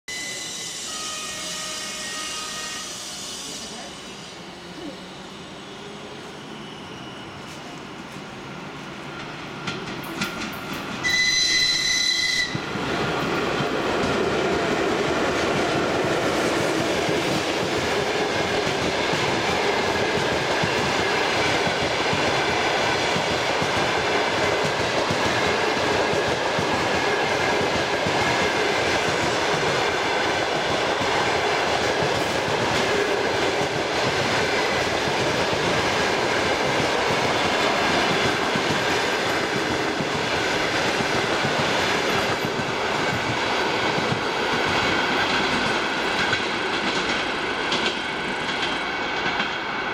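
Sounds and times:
locomotive whistle: 0.1s - 3.7s, 11.0s - 12.7s
train wheels rumbling on rails: 0.1s - 49.9s.

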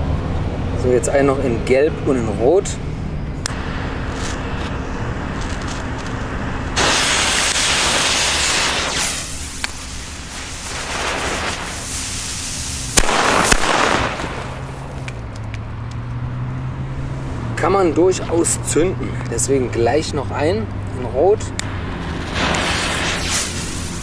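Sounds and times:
fuse hissing: 3.5s - 15.1s, 22.2s - 24.0s
firecracker bangs: 6.8s - 15.2s, 21.7s - 24.0s.

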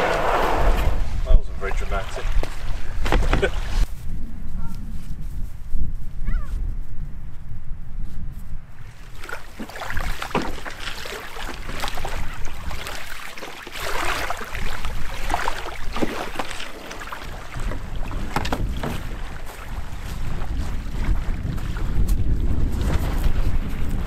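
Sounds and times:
waves lapping against canoe hull: 0.0s - 3.9s, 8.8s - 24.0s
wind rumble on microphone: 0.0s - 24.0s
water washing over shingle: 8.9s - 22.1s.

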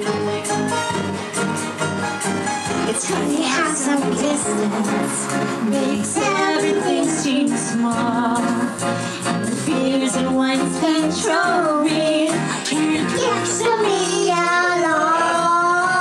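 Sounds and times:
backing music track: 0.0s - 16.0s
girl singing into a microphone: 2.9s - 5.0s, 5.7s - 8.5s, 9.7s - 16.0s.

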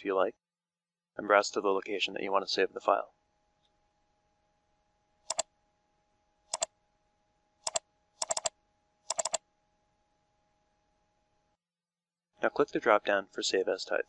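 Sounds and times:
faint steady tone: 3.1s - 11.6s
mouse button clicking: 7.7s - 8.5s, 9.1s - 9.4s.

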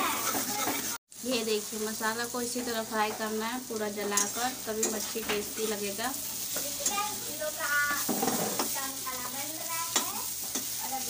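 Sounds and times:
spatula scraping metal pan: 0.0s - 1.0s, 4.0s - 7.2s, 7.8s - 8.8s
spices sizzling in oil: 0.0s - 11.0s
spatula clicking on metal: 4.1s - 5.7s.

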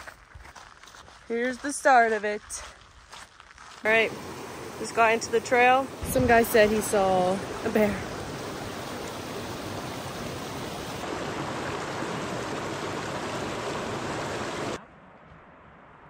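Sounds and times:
creek rushing over rocks: 3.8s - 14.8s.

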